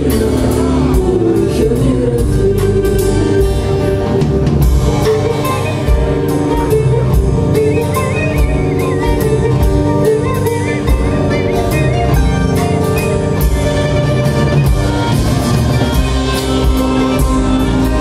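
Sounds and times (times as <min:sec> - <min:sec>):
bass: 0:00.0 - 0:18.0
drum kit: 0:00.0 - 0:18.0
mandolin plucked melody: 0:00.0 - 0:18.0
high wavering melody line: 0:04.9 - 0:14.6.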